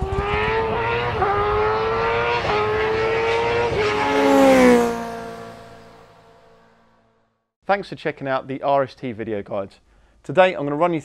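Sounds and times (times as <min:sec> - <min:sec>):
rising whoosh: 0:00.0 - 0:06.8
racing engine accelerating: 0:00.0 - 0:07.2.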